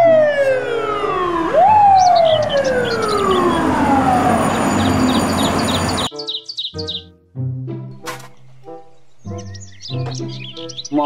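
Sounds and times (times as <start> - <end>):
fire truck siren wailing: 0.0 - 6.1.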